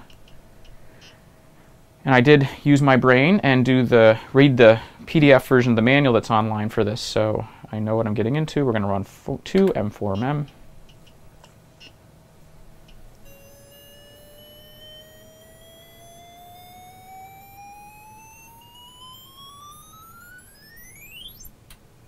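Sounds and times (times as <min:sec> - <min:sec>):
beeping tone rising in pitch: 0:13.2 - 0:21.5.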